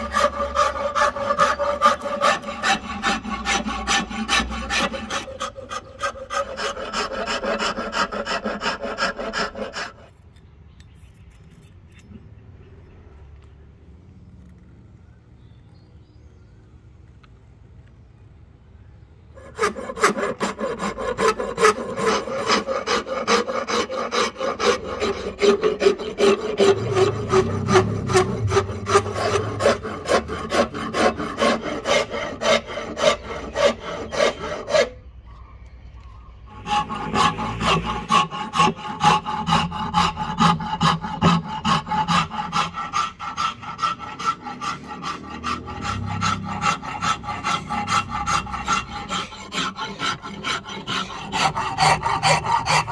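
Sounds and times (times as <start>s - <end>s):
hand file scraping wood: 0.0s - 10.2s, 19.4s - 35.0s, 36.5s - 52.9s.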